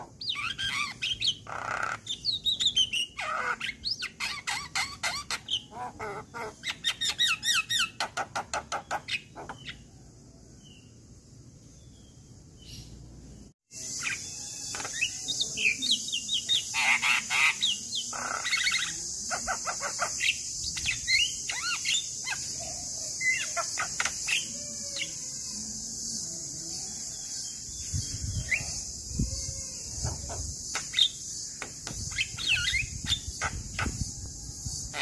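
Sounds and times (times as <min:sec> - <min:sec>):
myna calling: 0:00.0 - 0:09.7.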